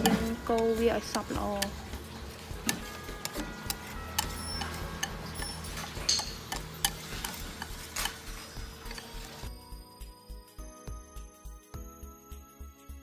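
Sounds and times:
utensils clinking on metal bowl: 0.0 - 9.5.

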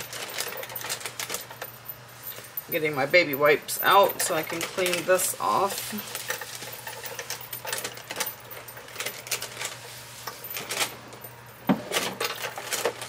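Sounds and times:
rustling of baby wipes: 4.2 - 7.1.

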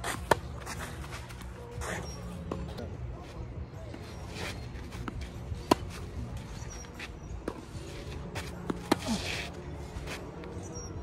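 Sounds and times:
tennis ball bounces: 4.9 - 6.0.

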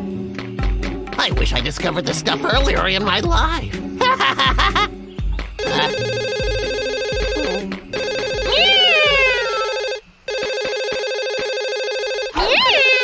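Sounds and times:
telephone ringing: 5.6 - 12.4
cat meowing: 8.5 - 9.9.

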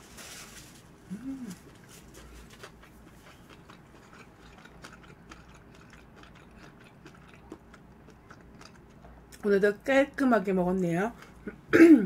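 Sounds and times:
eating sounds clicks and scrapes: 1.6 - 9.2.

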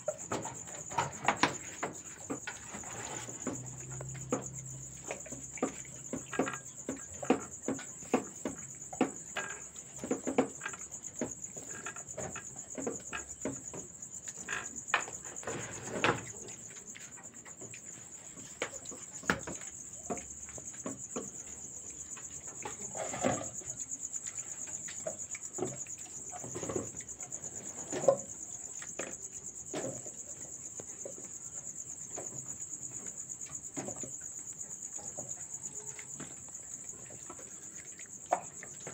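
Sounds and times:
crickets chirring: 0.0 - 38.9.

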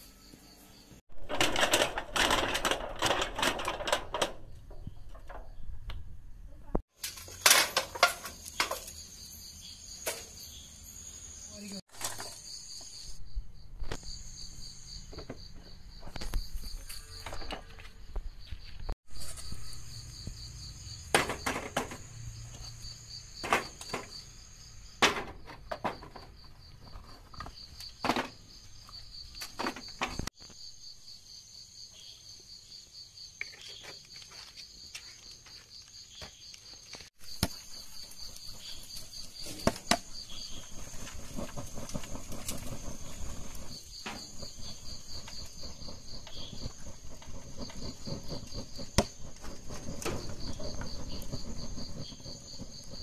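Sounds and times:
coconut shells clattering on charcoal: 1.2 - 5.9, 6.9 - 9.1, 37.1 - 53.0
insects trilling: 7.1 - 53.0.

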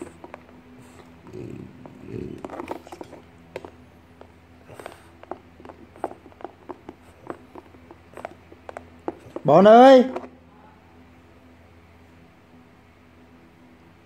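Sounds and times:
dog chewing plastic container: 0.0 - 10.3
dog breathy noise: 4.6 - 9.4.

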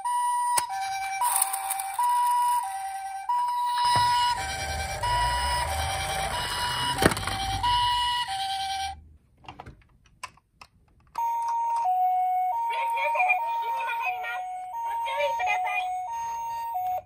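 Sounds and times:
toy two-tone siren: 0.0 - 9.0, 11.2 - 17.0
toy rolling on wooden board: 1.2 - 2.8, 3.8 - 8.9.

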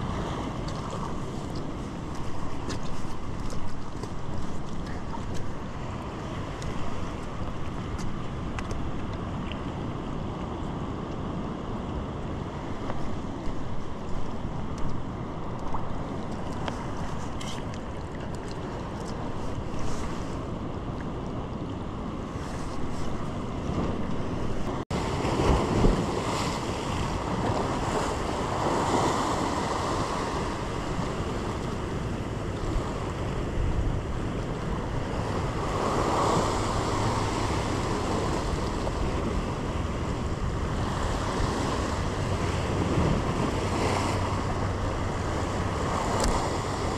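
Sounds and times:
waves breaking on rocks: 0.0 - 46.9
wind on microphone: 0.0 - 46.9.

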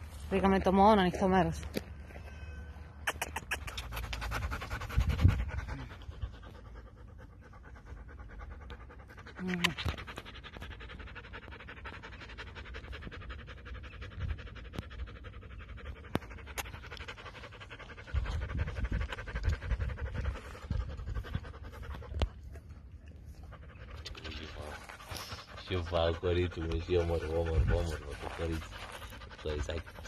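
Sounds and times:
dog panting: 3.1 - 30.0.

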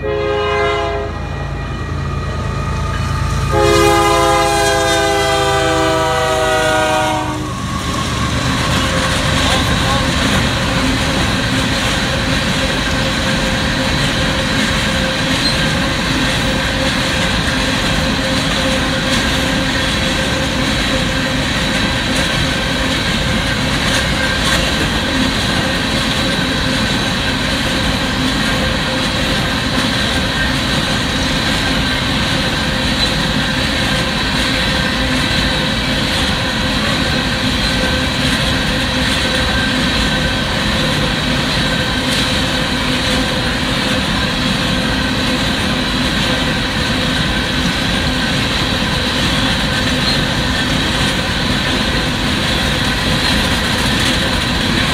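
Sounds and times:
train wheels rumbling on track: 0.0 - 54.9
steady high-pitched tones: 0.9 - 5.8, 7.0 - 12.3.

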